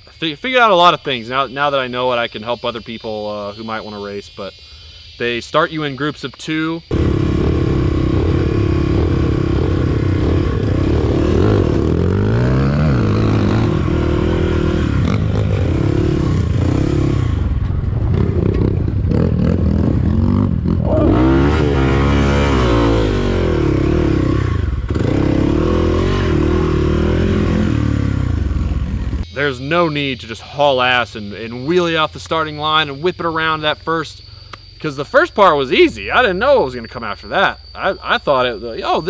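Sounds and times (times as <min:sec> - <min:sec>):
dirt bike engine revving: 0:06.9 - 0:29.9.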